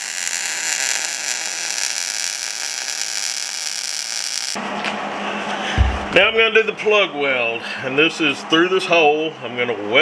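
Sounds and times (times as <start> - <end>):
welding arc hissing: 0.0 - 4.6.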